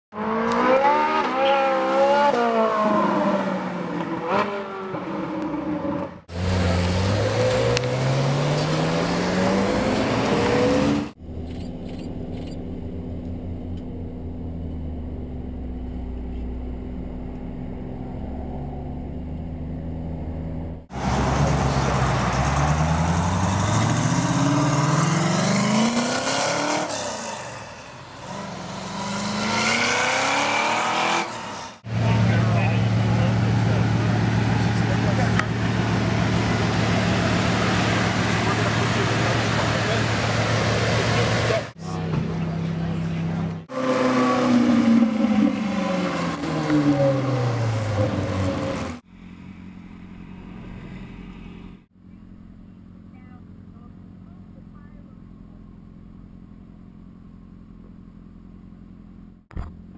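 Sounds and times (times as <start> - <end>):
sports car engines revving: 0.1 - 57.6.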